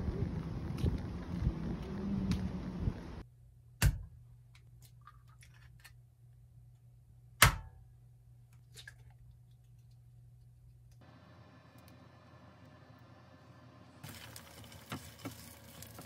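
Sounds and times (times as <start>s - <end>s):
wind buffeting microphone: 0.0s - 3.2s.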